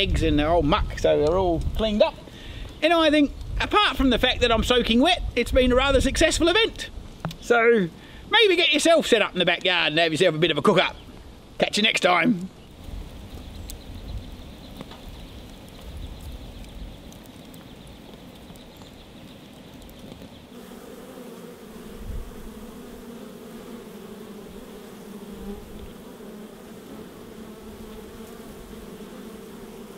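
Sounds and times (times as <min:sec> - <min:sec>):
wood fire crackling: 0:00.0 - 0:12.0, 0:12.6 - 0:20.6
honey bees buzzing: 0:16.2 - 0:29.9.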